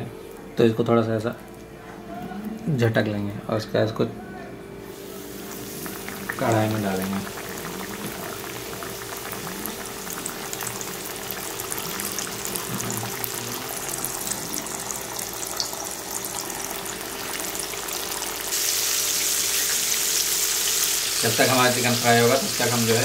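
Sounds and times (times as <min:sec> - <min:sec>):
chicken deep-frying in oil: 0:04.9 - 0:23.0.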